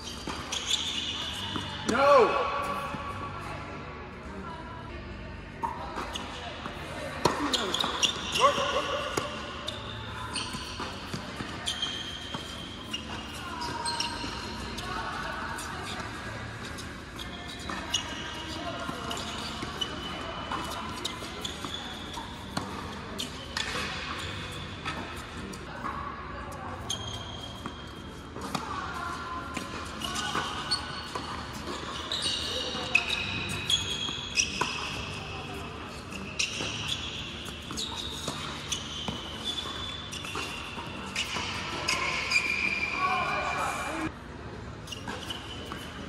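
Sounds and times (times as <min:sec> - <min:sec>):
shoe squeaks on court: 0:00.0 - 0:03.2, 0:05.6 - 0:25.8, 0:26.6 - 0:44.1, 0:44.7 - 0:46.0
tennis ball bouncing: 0:18.8 - 0:25.5.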